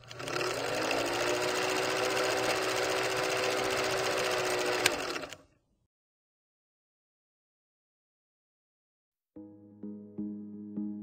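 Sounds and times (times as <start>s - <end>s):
film projector whirring and clattering: 0.0s - 5.4s.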